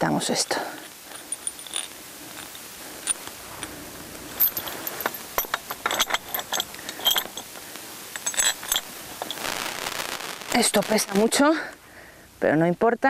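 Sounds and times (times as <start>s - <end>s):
metal chain links clinking: 0.0s - 9.6s.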